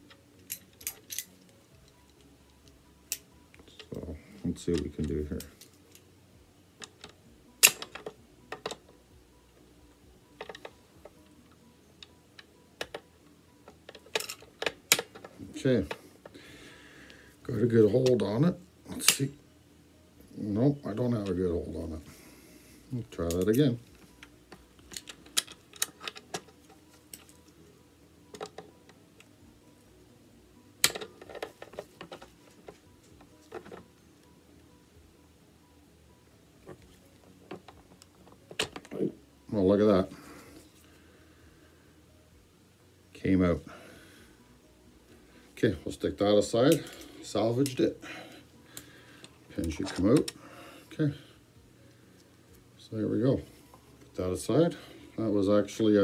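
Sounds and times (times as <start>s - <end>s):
pliers clicking on metal: 0.1s - 4.0s, 6.8s - 8.8s, 24.2s - 27.5s.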